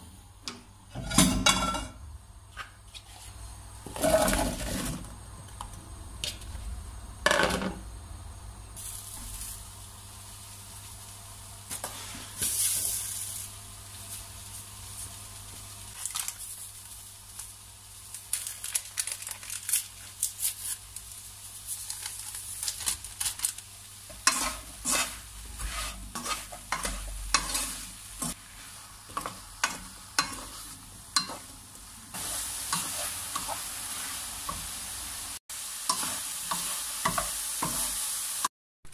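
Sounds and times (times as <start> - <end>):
apples sizzling: 0.0 - 38.9
wooden spoon scraping pan: 2.6 - 5.1, 24.1 - 31.5.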